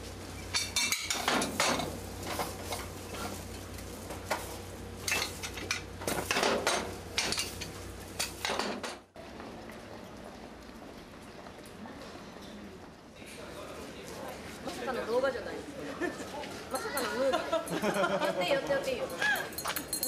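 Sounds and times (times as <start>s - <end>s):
metal griddle molds clattering: 0.5s - 3.4s, 5.0s - 9.0s.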